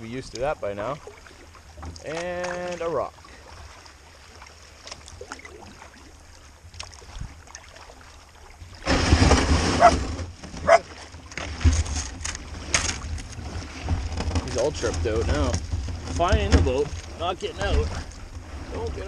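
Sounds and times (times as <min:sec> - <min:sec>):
water and canoe hull noise: 0:00.0 - 0:19.0
faint hull knocks: 0:08.9 - 0:18.7.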